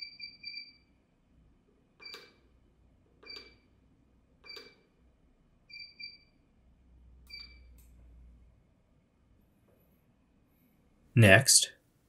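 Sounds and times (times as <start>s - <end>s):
electronic beeps with clicks: 2.0s - 2.4s, 3.2s - 3.7s, 4.4s - 4.8s, 7.3s - 7.8s.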